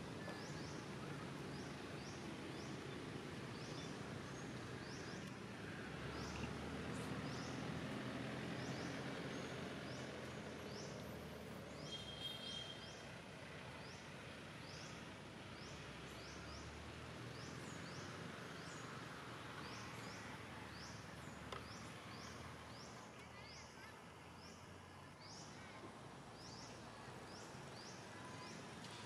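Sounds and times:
bird chirping: 11.8 - 13.0.

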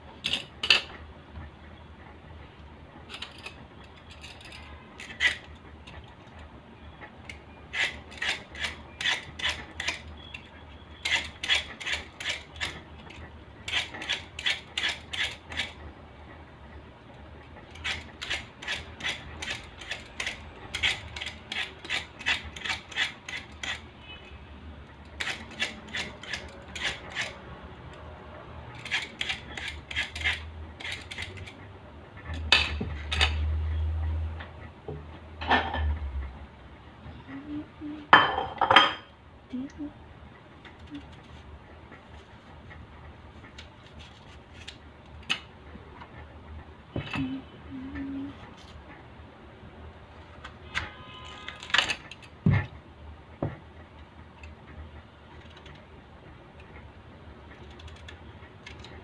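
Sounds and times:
vegetable peeler scraping produce: 3.1 - 6.2, 7.3 - 15.8, 17.7 - 23.9, 25.0 - 27.5, 28.7 - 31.6.

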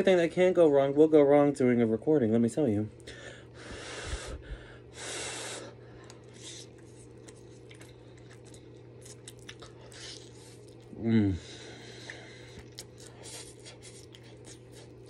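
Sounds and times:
soft chewing with wet mouth clicks: 6.0 - 10.9, 12.0 - 15.0.

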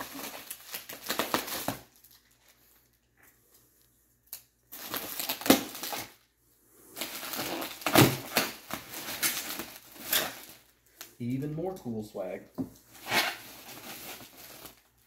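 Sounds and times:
bubble wrap sharp crack: 0.0 - 3.0, 4.2 - 6.3, 7.0 - 11.1, 12.8 - 15.0
bubble wrap crinkling: 0.0 - 11.5, 12.8 - 15.0.

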